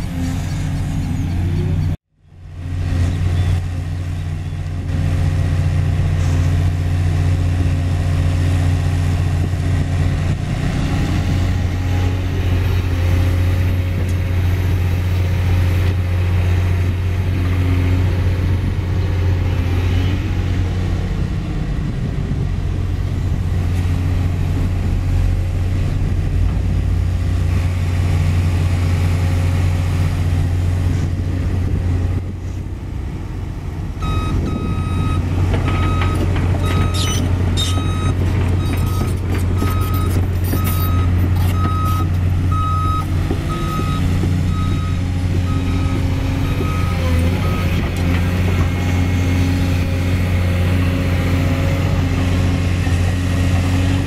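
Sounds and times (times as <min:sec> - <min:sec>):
excavator diesel engine drone: 0:00.0 - 0:54.0.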